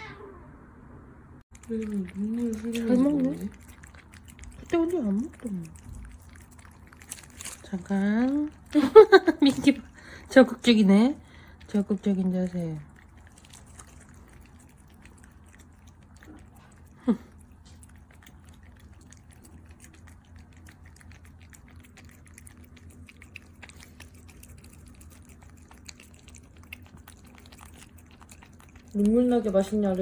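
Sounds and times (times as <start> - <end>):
cats licking wet paste: 1.5 - 30.0.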